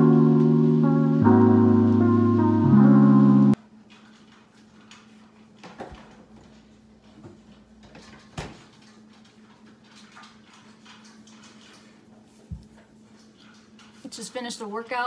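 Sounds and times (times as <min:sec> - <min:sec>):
background music: 0:00.0 - 0:03.6.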